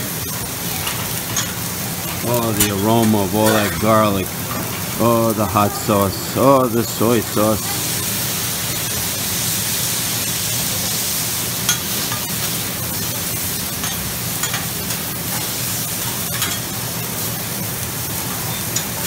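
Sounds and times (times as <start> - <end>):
food sizzling on a griddle: 0.0 - 19.0
metal spatulas clicking on griddle: 13.8 - 15.5, 16.3 - 16.7.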